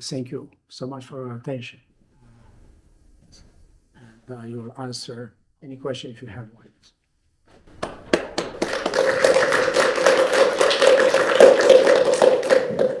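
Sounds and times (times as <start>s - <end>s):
audience applauding: 7.7s - 13.0s.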